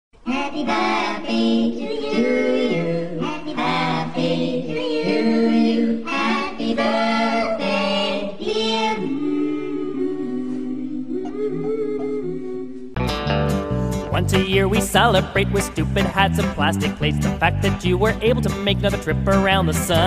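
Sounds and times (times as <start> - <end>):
voices singing in harmony: 0.2 - 13.0.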